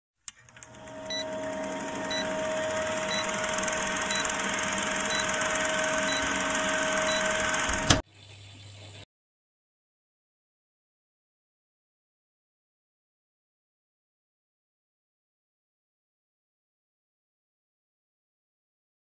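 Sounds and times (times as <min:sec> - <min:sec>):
film projector whirring and ticking: 0:00.3 - 0:08.0
short high beeps: 0:03.0 - 0:07.6.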